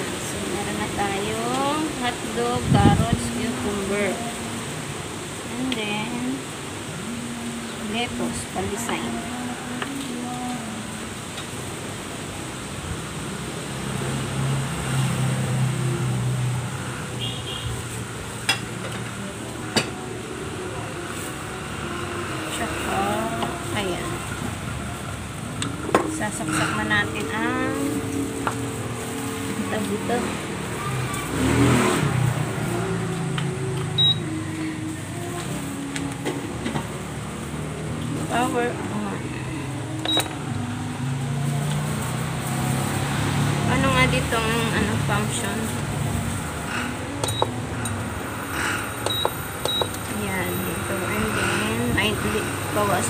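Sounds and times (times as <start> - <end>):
outdoor background noise: 0.0 - 53.0
passing vehicle engine drone: 0.0 - 53.0
cooktop high beep: 34.0 - 34.2, 49.0 - 50.0.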